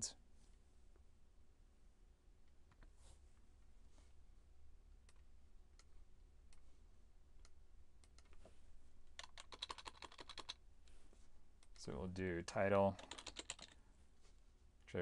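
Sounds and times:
typing on computer keyboard: 9.2 - 10.6, 12.9 - 13.8.

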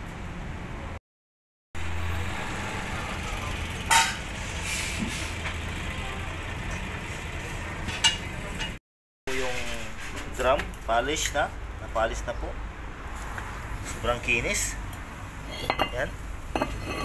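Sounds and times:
vehicle engine idling: 1.8 - 8.6
sharp metallic clank: 3.8 - 4.3.

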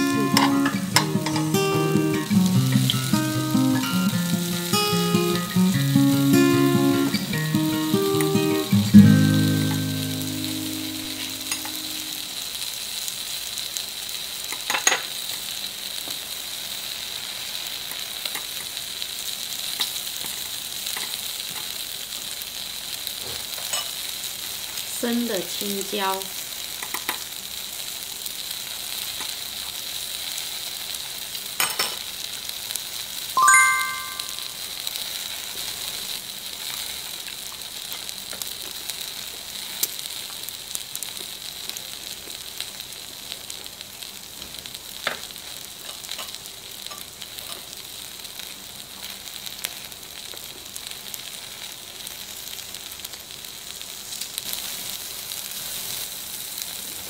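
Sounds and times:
food sizzling on grill plate: 0.0 - 57.0
chime-like tone: 33.4 - 34.6.

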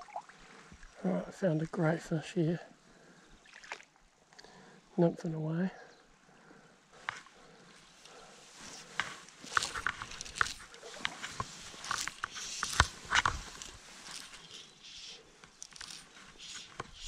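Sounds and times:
fishing line rustling: 7.0 - 17.0
fishing reel clicks: 9.4 - 17.0.

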